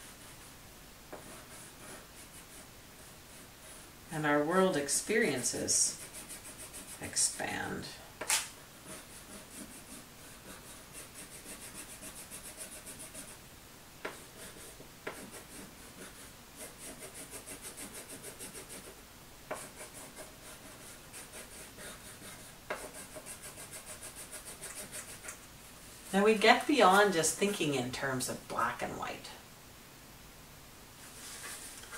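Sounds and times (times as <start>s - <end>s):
crayon scribbling on paper: 1.2s - 3.9s, 4.5s - 7.6s, 8.8s - 13.4s, 14.1s - 25.3s.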